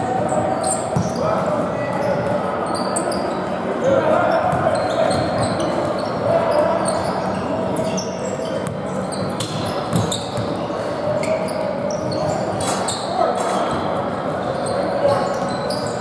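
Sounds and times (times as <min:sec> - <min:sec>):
murmur of voices echoing: 0:00.0 - 0:16.0
sneaker squeaks: 0:00.1 - 0:16.0
basketball bouncing: 0:09.4 - 0:10.5.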